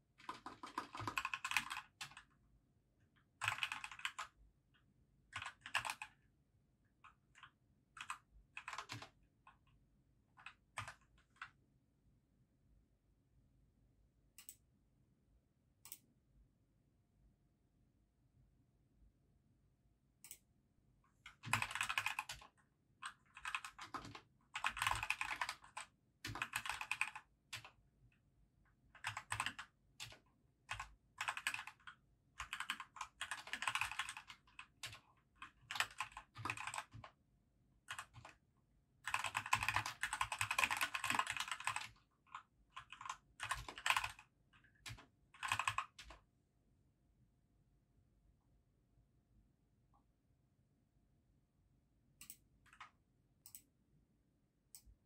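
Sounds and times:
keyboard typing clicks: 14.4 - 14.6, 21.3 - 27.7, 29.0 - 31.8, 32.4 - 37.1, 39.1 - 42.0, 42.8 - 46.2, 52.2 - 53.7.

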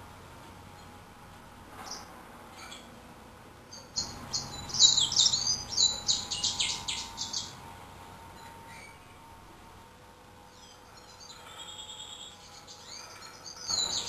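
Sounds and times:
bird singing high chirps: 3.7 - 7.6, 8.6 - 9.1, 10.5 - 14.0.

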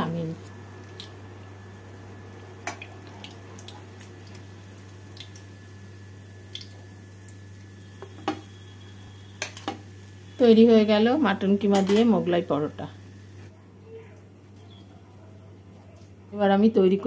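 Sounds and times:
steady low hum: 0.0 - 17.0
hot oil crackling in pan: 0.1 - 10.6.

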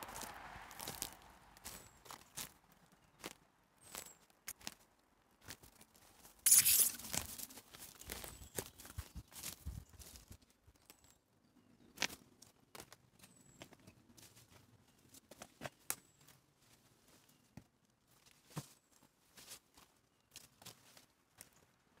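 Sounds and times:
footsteps on dry leaves and twigs: 0.0 - 10.5, 18.1 - 21.7.

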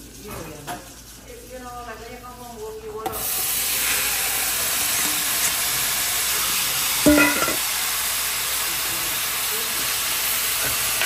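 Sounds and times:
peas sizzling in hot sugar: 3.0 - 11.0
metal clank: 7.1 - 7.6.

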